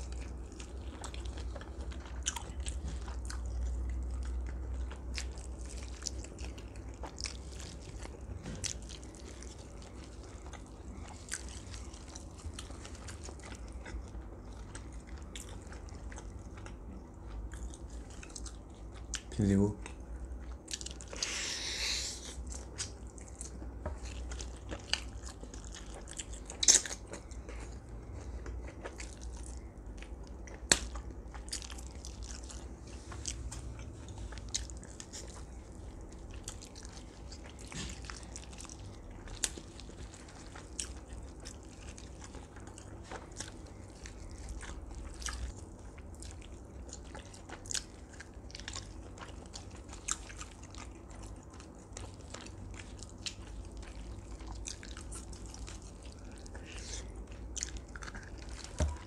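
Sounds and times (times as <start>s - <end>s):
low steady hum: 0.0s - 59.0s
person chewing meat: 0.0s - 59.0s.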